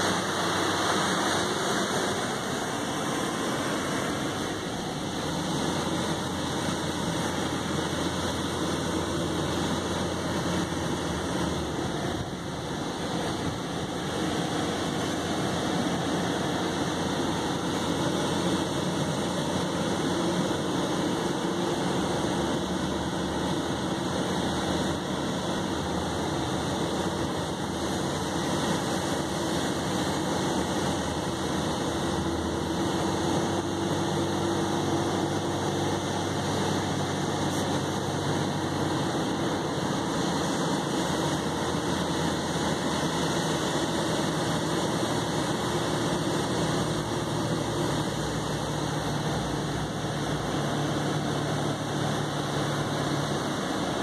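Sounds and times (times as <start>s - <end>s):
vehicle driving on sand: 0.0s - 54.0s.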